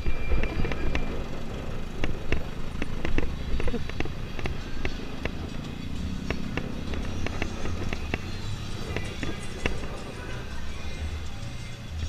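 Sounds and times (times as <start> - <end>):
motorcycle engine rumbling: 0.0 - 12.0
sharp pops and clicks: 2.0 - 5.5, 6.2 - 8.3.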